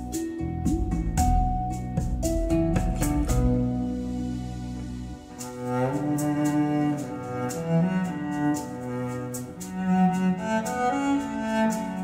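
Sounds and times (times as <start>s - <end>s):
slow string-like melody: 0.0s - 12.0s.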